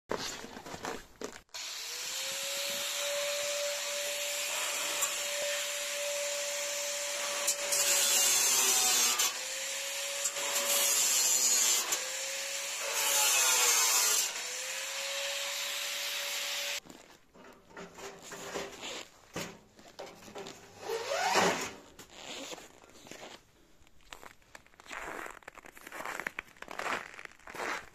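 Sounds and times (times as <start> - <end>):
power tool cutting metal: 1.6 - 16.8.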